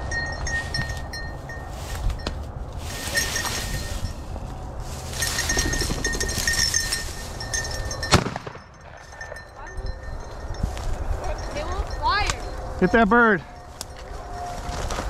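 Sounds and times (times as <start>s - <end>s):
footsteps through dry grass: 0.0s - 8.5s, 9.9s - 15.0s
light metallic jingling: 0.0s - 14.7s
wind on microphone: 0.0s - 15.0s.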